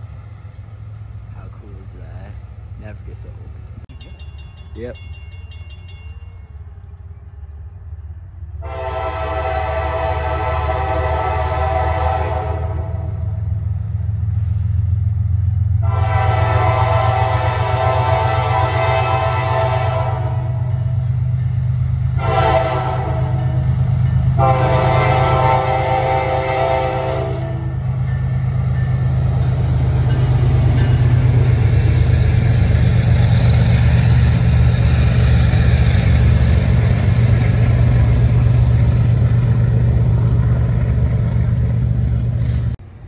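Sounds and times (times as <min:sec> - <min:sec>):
rail noise: 0:00.0 - 0:43.0
locomotive horn blasts: 0:08.6 - 0:13.4, 0:15.8 - 0:20.7, 0:22.2 - 0:23.6, 0:24.4 - 0:27.9.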